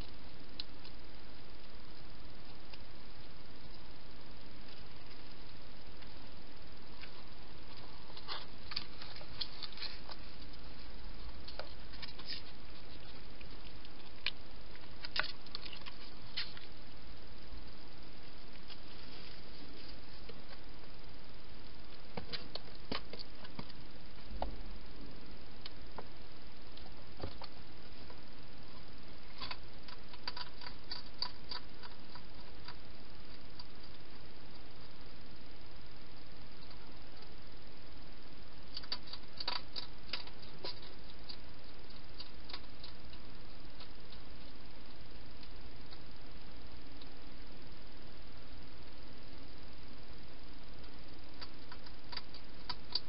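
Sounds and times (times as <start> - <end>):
steady hiss: 0.0 - 53.0
hedgehog chewing: 6.8 - 16.8, 26.7 - 34.9, 38.6 - 46.1, 50.8 - 53.0.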